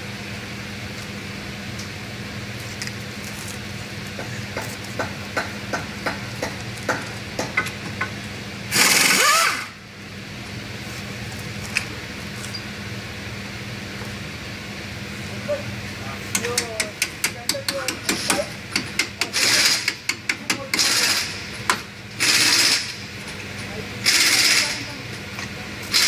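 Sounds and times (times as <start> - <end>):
steady low hum: 0.0 - 26.0
metal tool clicks and taps: 16.3 - 19.3.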